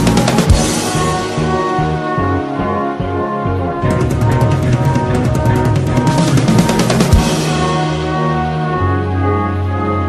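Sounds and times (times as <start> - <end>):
music with fast drum beat: 0.0 - 2.2, 3.8 - 8.9
sustained low notes: 0.1 - 10.0.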